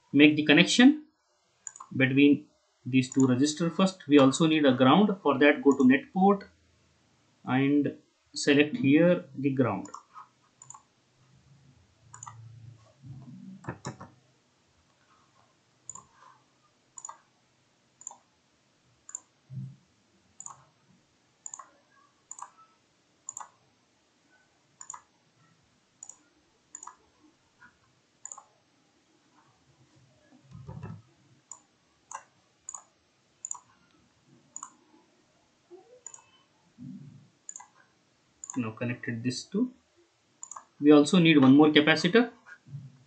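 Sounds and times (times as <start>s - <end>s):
computer mouse clicking: 1.6s - 2.0s, 3.1s - 3.3s, 9.8s - 10.9s, 12.1s - 14.2s, 15.9s - 16.4s, 17.0s - 17.3s, 18.0s - 18.3s, 19.1s - 19.6s, 20.4s - 20.7s, 21.4s - 22.7s, 23.3s - 23.6s, 24.8s - 25.1s, 26.0s - 27.0s, 27.6s - 28.5s, 30.4s - 34.8s, 35.8s - 38.6s, 40.4s - 40.8s.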